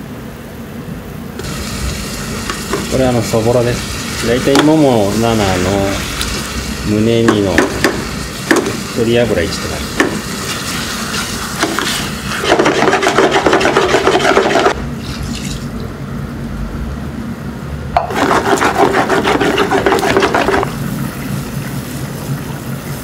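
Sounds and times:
steady cooking noise: 0.0s - 23.0s
whisk scraping and rattling in pan: 10.5s - 14.8s, 18.0s - 20.8s.

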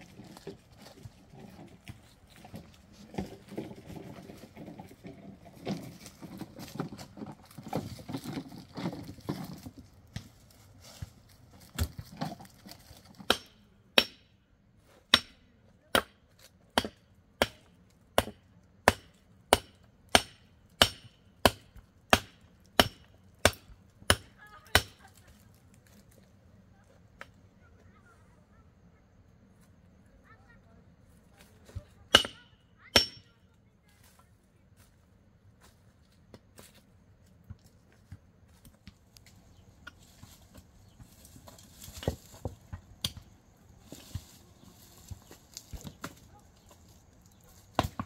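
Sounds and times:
bar striking earth and stones: 0.1s - 10.4s, 11.6s - 25.0s, 31.6s - 33.3s, 39.8s - 44.2s, 45.2s - 48.0s.

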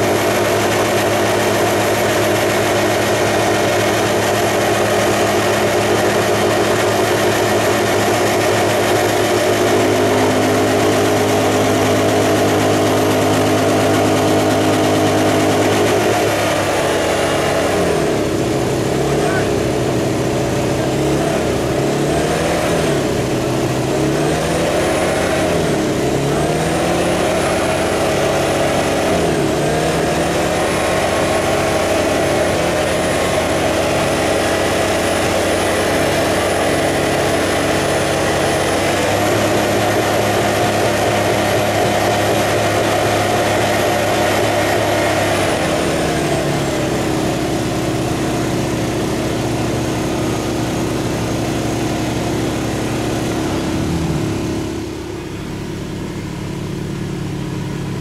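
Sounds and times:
engine revving: 0.0s - 58.0s.

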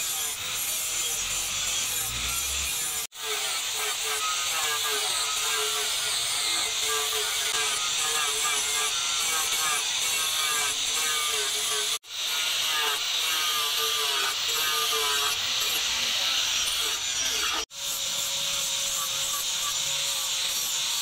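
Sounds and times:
angle grinder grinding metal: 0.0s - 21.0s.

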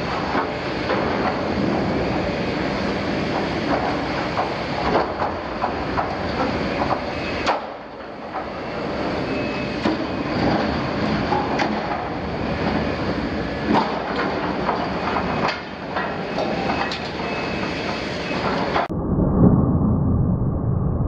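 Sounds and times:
high metal squeal: 8.6s - 11.0s, 16.3s - 18.7s.

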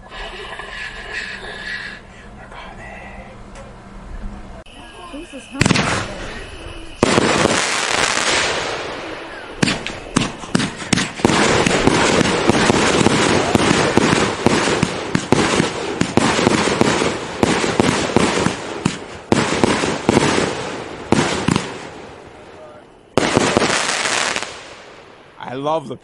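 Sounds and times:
fireworks bangs and crackle: 5.5s - 25.3s.

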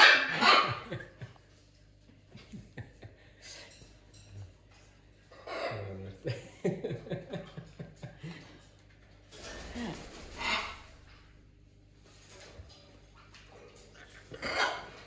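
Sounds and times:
man laughing: 6.2s - 8.5s.

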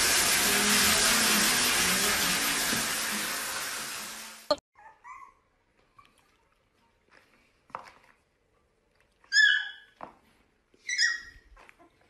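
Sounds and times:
puppy yipping: 4.8s - 6.1s, 9.3s - 10.0s, 10.8s - 12.0s.

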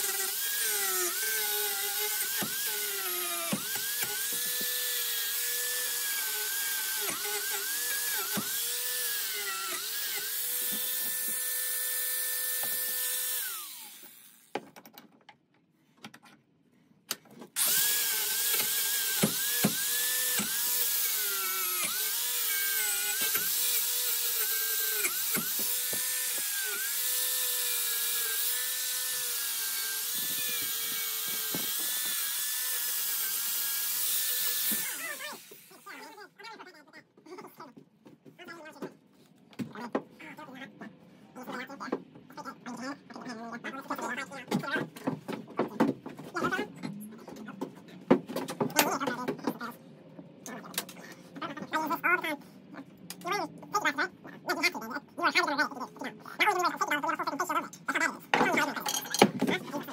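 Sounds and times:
angle grinder grinding metal: 0.0s - 14.6s, 17.6s - 36.2s, 58.4s - 59.9s.

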